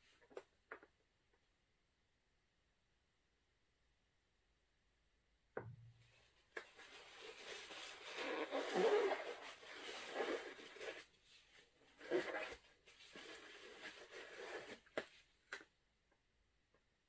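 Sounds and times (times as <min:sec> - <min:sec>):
crinkly rustling: 0:06.6 - 0:15.3.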